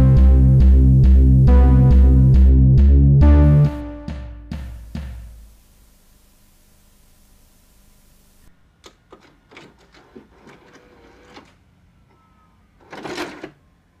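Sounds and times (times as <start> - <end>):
tape hiss: 4.5 - 8.8.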